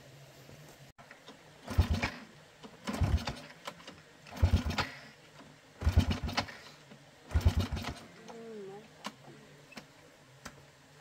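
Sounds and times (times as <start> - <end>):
motorbike engine cranking: 1.2 - 5.1, 5.8 - 8.3.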